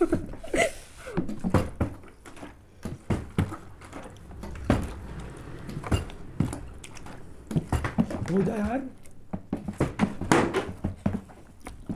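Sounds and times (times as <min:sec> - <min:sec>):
laughter: 0:00.0 - 0:01.2.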